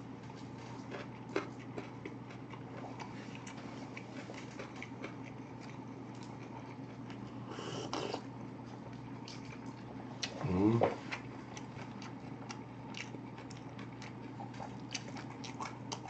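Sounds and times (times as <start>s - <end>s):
close chewing with wet clicks: 0.3s - 8.2s, 8.9s - 10.4s, 11.1s - 16.0s
noisy sip from paper cup: 7.4s - 8.3s.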